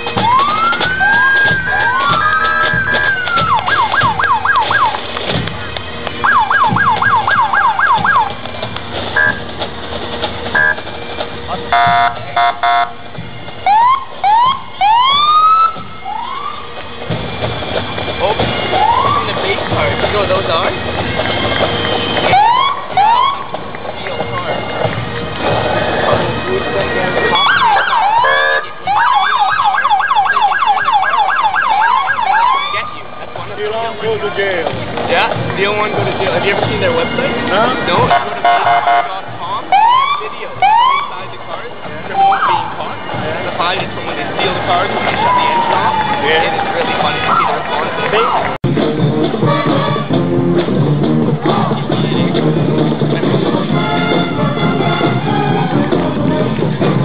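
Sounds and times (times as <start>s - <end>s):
emergency sirens wailing and yelping: 0.0s - 57.0s
electronic siren yelping: 0.2s - 5.0s, 6.2s - 8.4s, 9.2s - 9.4s, 10.6s - 10.8s, 11.7s - 12.9s, 13.6s - 16.7s, 18.7s - 19.4s, 22.2s - 23.5s, 27.3s - 33.0s, 39.5s - 41.2s
short horn blast: 11.7s - 13.0s, 28.2s - 28.9s, 37.4s - 39.2s, 49.3s - 50.6s, 53.6s - 56.6s.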